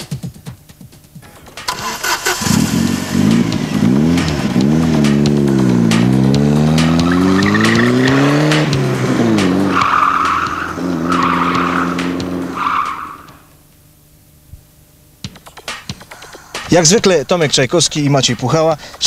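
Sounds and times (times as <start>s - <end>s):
car engine revving: 1.3s - 13.6s
tyres squealing: 6.2s - 13.5s.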